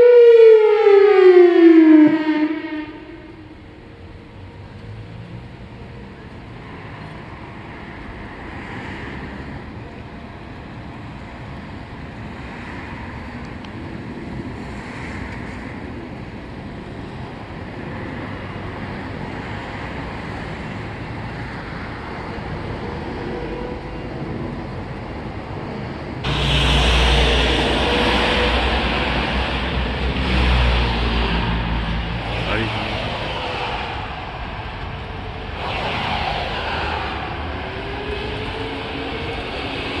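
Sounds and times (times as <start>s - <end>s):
steady wind: 0.0s - 40.0s
traffic noise: 0.0s - 40.0s
loud rush of noise: 16.6s - 40.0s.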